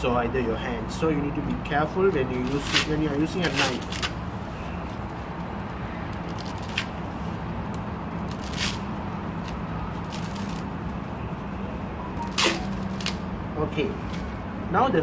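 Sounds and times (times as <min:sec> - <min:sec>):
coconut husk tearing: 0:02.2 - 0:04.2, 0:08.2 - 0:10.7, 0:12.3 - 0:13.2.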